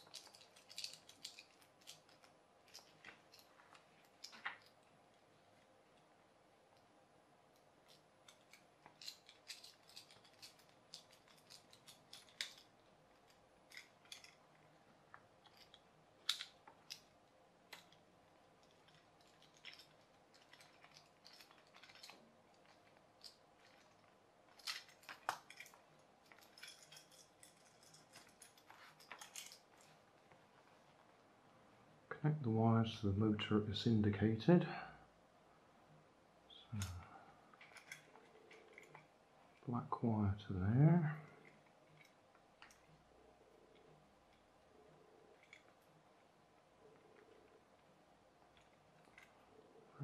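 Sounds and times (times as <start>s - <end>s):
plastic parts handled: 0.0s - 5.0s, 7.5s - 30.8s, 36.8s - 39.6s, 45.2s - 46.0s.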